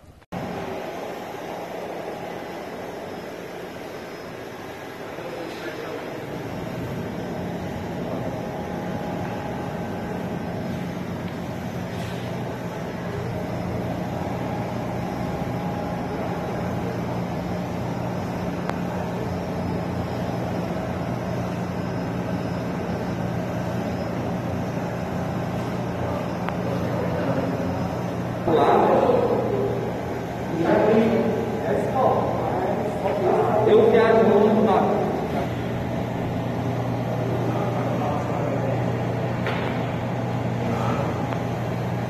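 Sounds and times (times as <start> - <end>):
engine hum: 0.0 - 42.0.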